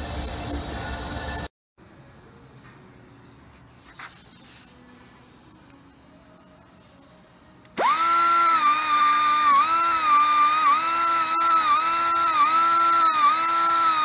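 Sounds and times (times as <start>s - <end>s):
power drill motor whine: 7.8s - 14.0s.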